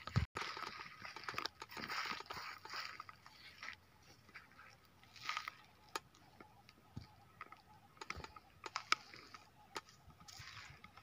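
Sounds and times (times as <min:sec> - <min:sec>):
footsteps on dry grass: 0:00.0 - 0:07.4, 0:08.1 - 0:11.0.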